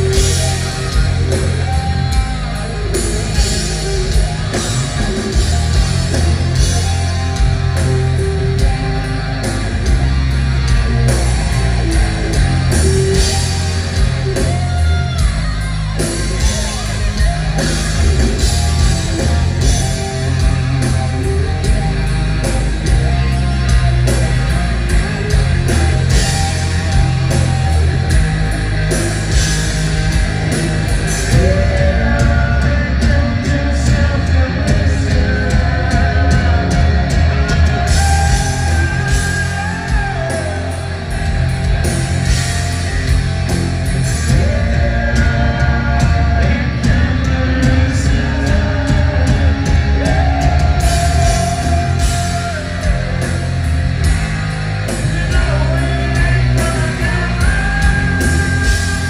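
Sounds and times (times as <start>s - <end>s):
bass: 0.0s - 59.0s
distorted electric guitars: 0.0s - 59.0s
drums: 0.0s - 59.0s
person singing: 31.2s - 41.2s, 44.2s - 53.6s, 54.9s - 59.0s.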